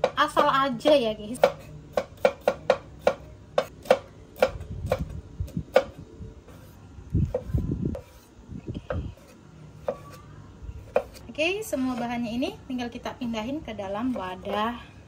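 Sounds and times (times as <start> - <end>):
knife chopping on wooden board: 1.4 - 5.1, 10.9 - 11.2.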